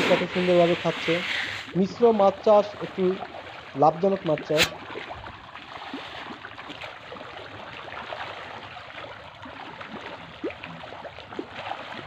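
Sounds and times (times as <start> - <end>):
fish splashing at water surface: 4.4 - 12.0.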